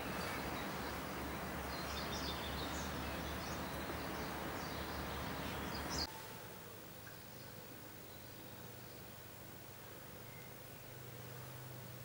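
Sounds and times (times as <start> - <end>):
small birds chirping: 0.0 - 6.1.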